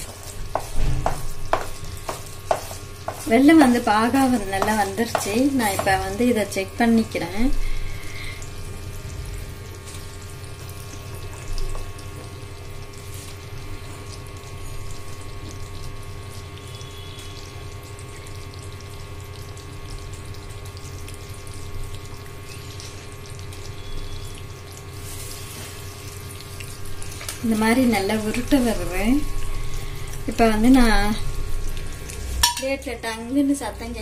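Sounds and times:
steady hum: 0.0 - 18.8
syrup boiling and crackling: 0.0 - 34.0.

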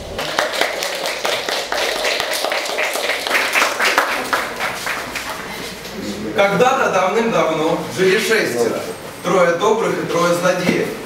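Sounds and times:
audience clapping: 0.0 - 5.6.

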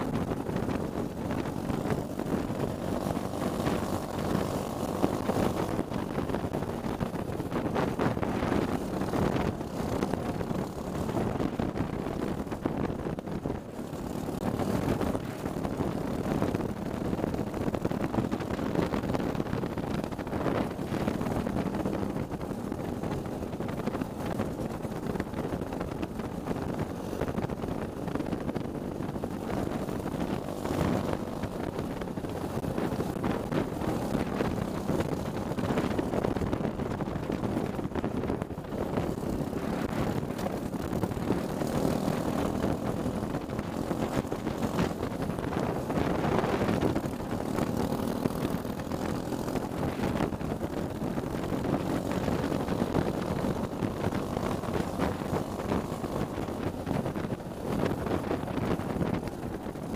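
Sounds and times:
racing kart engine running hard: 0.0 - 59.9.

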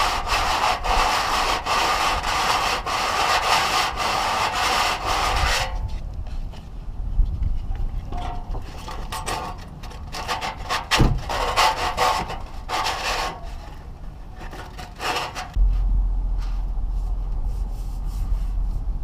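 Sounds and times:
sandpaper scrubbing metal: 0.0 - 5.8, 10.2 - 13.7, 14.5 - 15.6
low rumble: 15.5 - 19.0.

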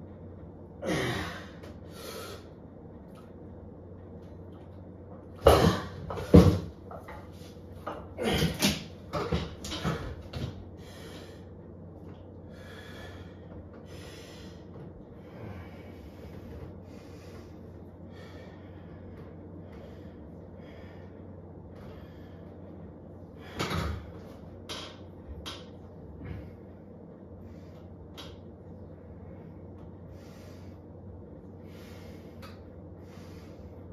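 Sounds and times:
heavy breathing: 10.7 - 11.6, 12.4 - 23.9, 29.0 - 33.9.

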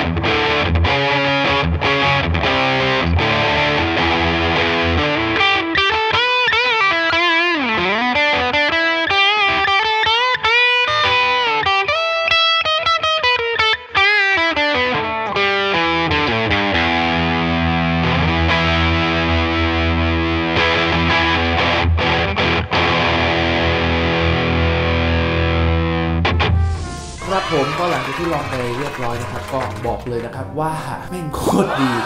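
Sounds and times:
distorted electric guitar: 0.0 - 28.6.

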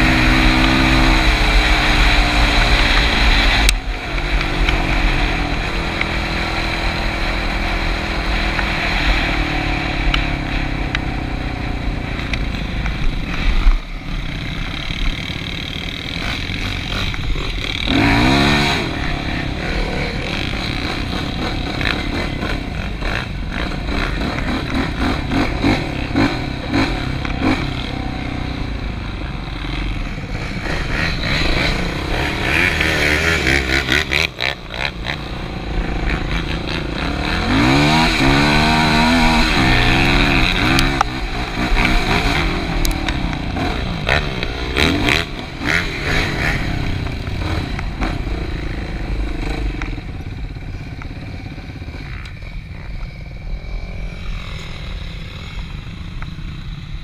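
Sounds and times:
atv engine revving: 0.0 - 57.0.

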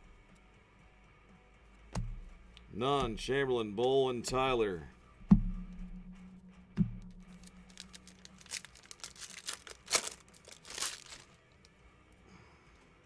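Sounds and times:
dull thump: 2.0 - 2.4, 3.0 - 3.4, 4.3 - 7.6
foil wrapper tearing and crinkling: 7.3 - 11.7.

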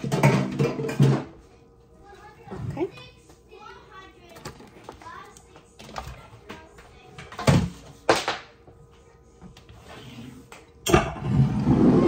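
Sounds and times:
dishes knocking on countertop: 0.0 - 1.3
bowl scraping on countertop: 9.7 - 12.0.

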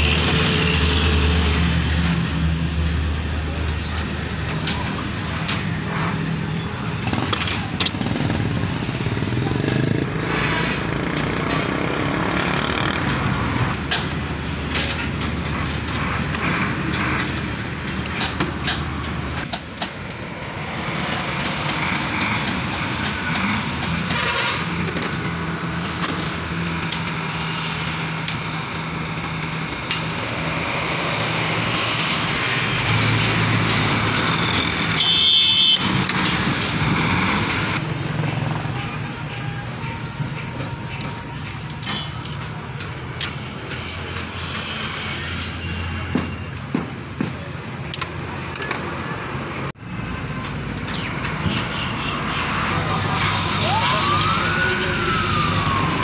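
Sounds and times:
hand tools clicking and knocking: 12.8 - 27.3, 39.3 - 44.3, 46.1 - 49.0.

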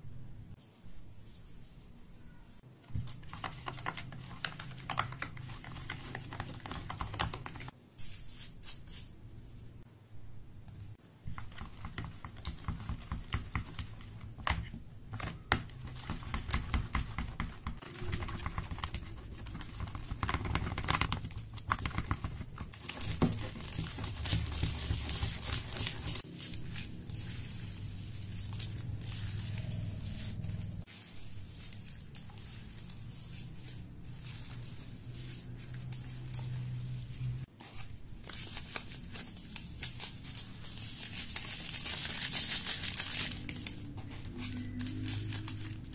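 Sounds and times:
slime stirred and kneaded: 0.5 - 9.6, 10.7 - 45.9
plastic bag crinkling: 22.7 - 45.9.

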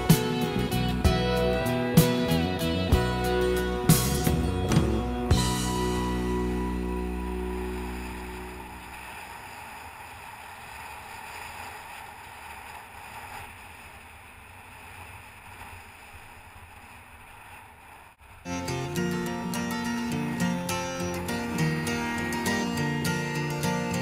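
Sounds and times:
music: 0.0 - 8.8, 18.5 - 24.0
song with acoustic guitar: 0.0 - 9.0, 18.5 - 24.0
road noise: 0.0 - 24.0
rushing wind: 6.6 - 23.6.

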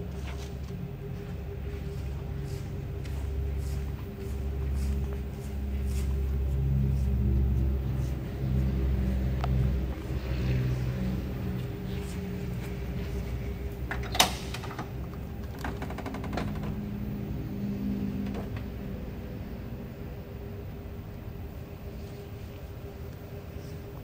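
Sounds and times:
door latch clicking: 13.9 - 15.0.

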